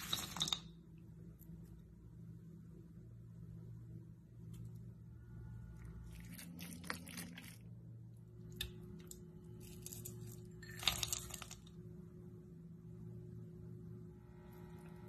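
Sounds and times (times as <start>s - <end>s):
rustling and scraping in bowl: 0.0s - 0.6s
ground nuts pouring into bowl: 0.0s - 0.7s, 9.6s - 11.7s
steady low hum: 0.0s - 15.0s.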